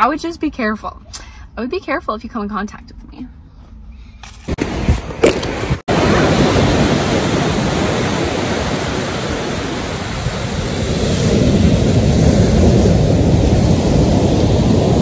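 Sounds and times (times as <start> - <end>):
ocean waves breaking on sand: 4.6 - 15.0.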